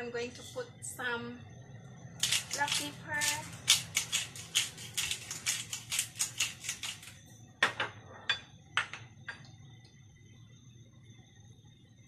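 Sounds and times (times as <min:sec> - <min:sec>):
pepper shaker rattling: 0:02.2 - 0:07.2.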